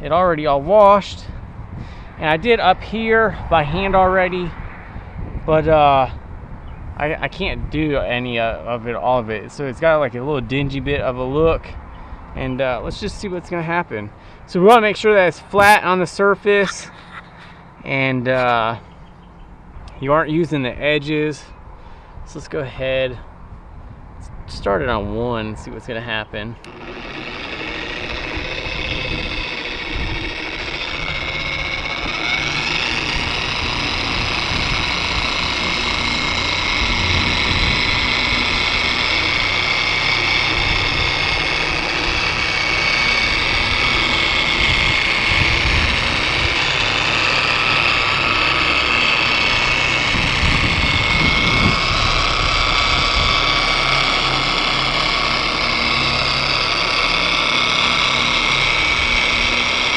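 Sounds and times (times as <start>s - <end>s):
polisher motor whining: 15.6s - 18.7s, 26.6s - 59.9s.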